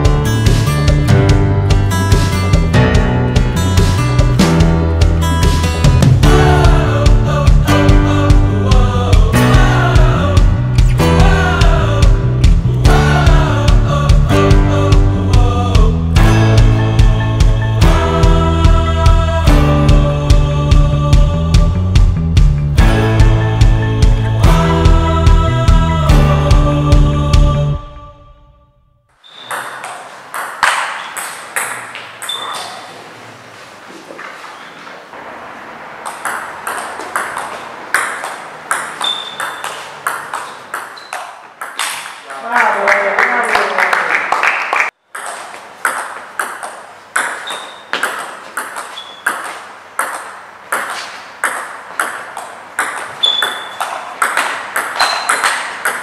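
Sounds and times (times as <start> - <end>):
music: 0.0 - 29.2
shoes squeaking on floor: 29.2 - 42.2, 47.2 - 49.8, 53.0 - 56.0
table tennis ball hits: 29.3 - 33.0, 36.0 - 42.3, 45.1 - 56.0.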